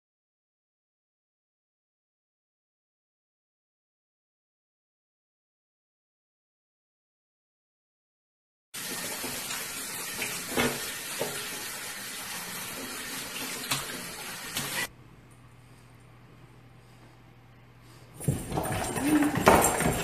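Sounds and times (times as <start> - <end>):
shower spraying water: 8.8 - 14.9.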